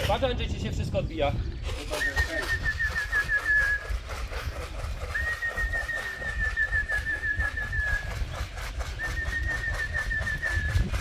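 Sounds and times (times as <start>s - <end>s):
trilling whistle notes: 1.9s - 4.0s, 5.1s - 8.3s, 8.9s - 11.0s.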